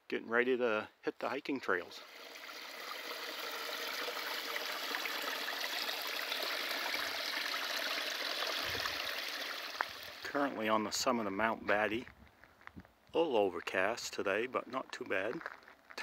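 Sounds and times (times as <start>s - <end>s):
brook trickling over rocks: 1.9s - 10.6s.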